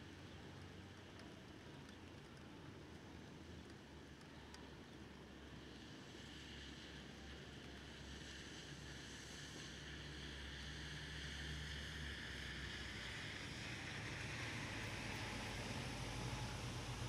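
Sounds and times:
wet road hiss: 0:05.6 - 0:17.0
traffic engine hum: 0:10.1 - 0:17.0.

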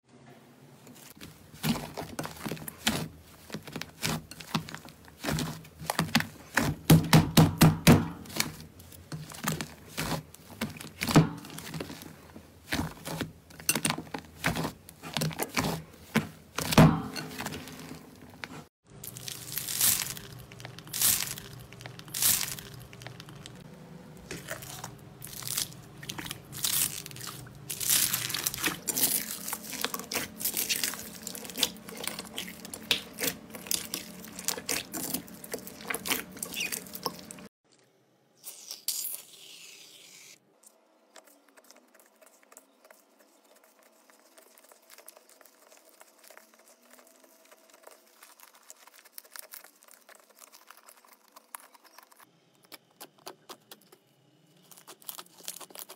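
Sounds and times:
crunchy slime squeezing: 0:01.0 - 0:06.9, 0:08.1 - 0:23.7, 0:24.3 - 0:37.5, 0:41.1 - 0:55.9
slime being kneaded: 0:01.0 - 0:23.6, 0:24.3 - 0:37.5.

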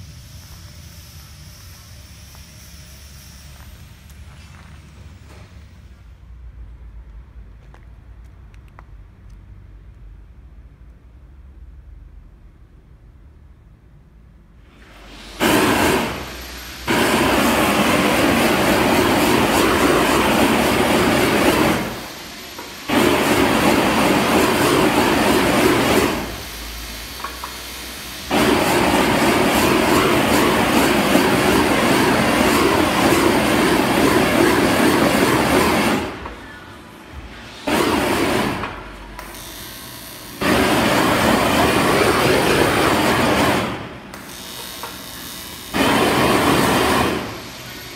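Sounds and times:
gas torch flame hissing: 0:14.6 - 0:39.4, 0:40.2 - 0:47.9.

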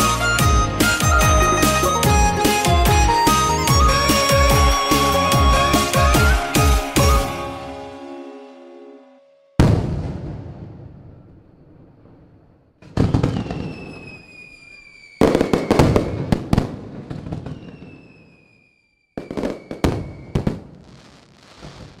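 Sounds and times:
whistling fireworks gliding downward: 0:00.0 - 0:08.6, 0:09.6 - 0:22.0
fireworks bursting with crackling pops: 0:09.6 - 0:22.0.

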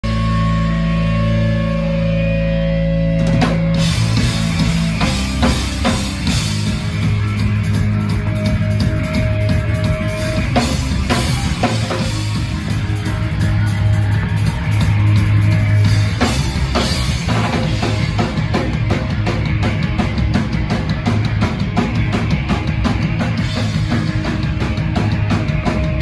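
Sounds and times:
electric guitar chord ringing: 0:00.0 - 0:14.1
drum kit: 0:00.0 - 0:26.0
live rock band: 0:00.0 - 0:26.0.

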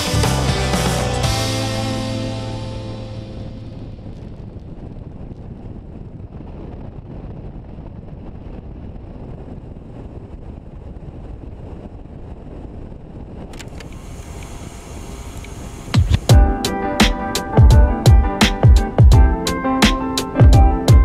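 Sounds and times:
wind rushing on microphone: 0:03.2 - 0:21.0
motorcycle engine rumble: 0:13.5 - 0:16.7.

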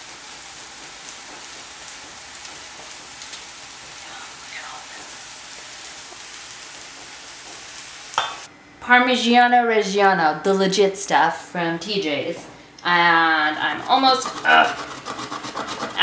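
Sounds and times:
vegetables sizzling in frying pan: 0:00.0 - 0:08.5.

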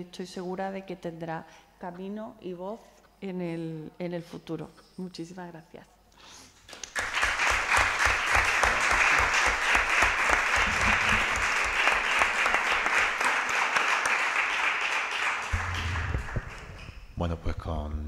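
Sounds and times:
audience applauding: 0:06.7 - 0:17.0.

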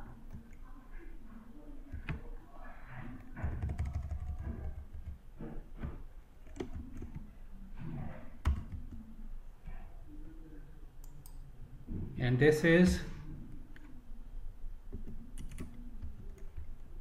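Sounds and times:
keyboard keys clicking: 0:03.5 - 0:05.2, 0:15.0 - 0:16.7.

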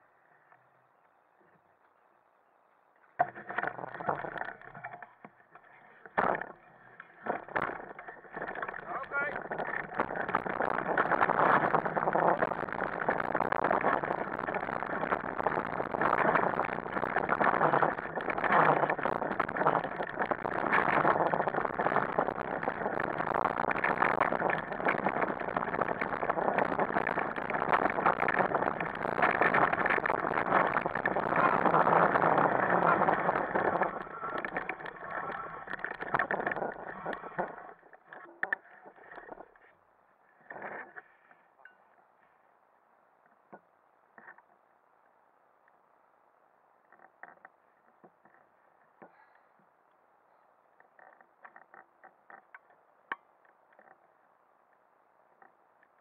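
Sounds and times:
rig rattling over dirt trail: 0:03.1 - 0:39.7, 0:40.3 - 0:41.7, 0:50.8 - 0:52.9.

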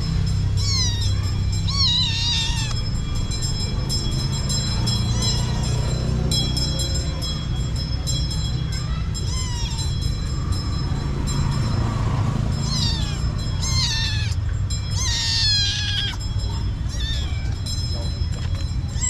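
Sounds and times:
steady low rumble: 0:00.0 - 0:05.4, 0:06.3 - 0:19.0
kitten meowing: 0:00.6 - 0:02.9, 0:09.3 - 0:09.9, 0:12.6 - 0:17.6.

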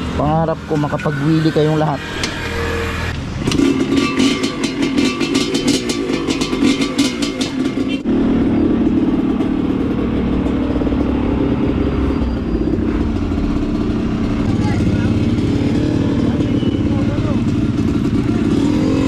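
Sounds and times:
motorcycle engine running: 0:02.4 - 0:19.0.

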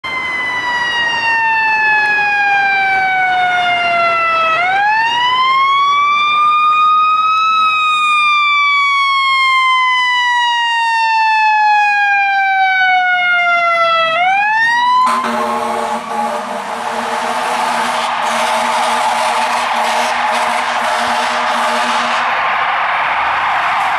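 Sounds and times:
fire engine siren wailing: 0:00.0 - 0:23.9
air horn blast: 0:15.0 - 0:22.3.

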